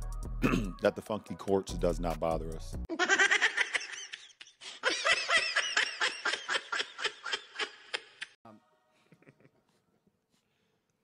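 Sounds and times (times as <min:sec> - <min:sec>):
person laughing: 0:02.9 - 0:08.4, 0:09.0 - 0:09.7.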